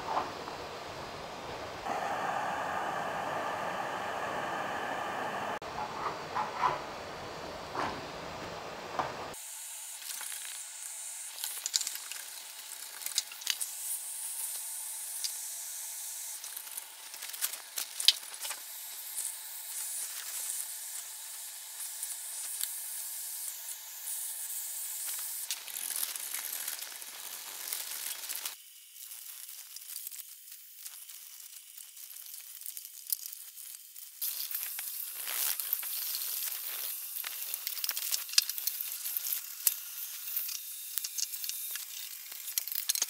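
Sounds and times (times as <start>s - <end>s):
wallpaper steamer hissing: 0.0s - 5.6s.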